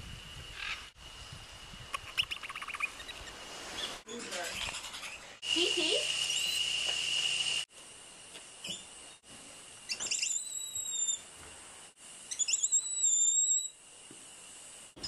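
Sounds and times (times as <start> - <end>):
steady high hum with hiss: 0.0 - 15.0
monkey whinny calls: 9.9 - 11.2, 12.3 - 13.7.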